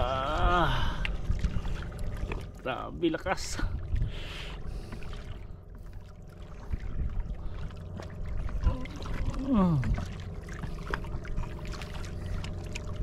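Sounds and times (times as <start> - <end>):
seawater splashing and dripping: 0.0 - 13.0
person groaning: 8.7 - 10.0.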